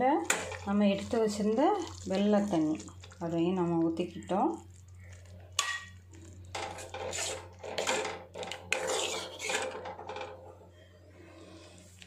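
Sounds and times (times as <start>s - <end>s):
ladle scraping metal pot: 5.6s - 10.4s.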